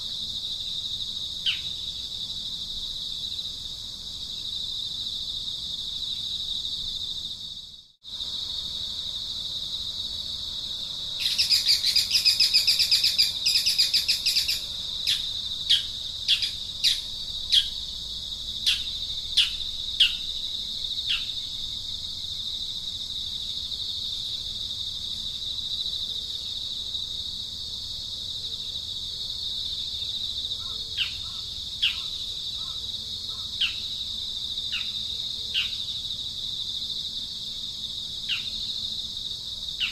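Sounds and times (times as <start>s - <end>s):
high-pitched insect drone: 0.0s - 39.9s
bird trilling and chirping: 11.2s - 17.7s.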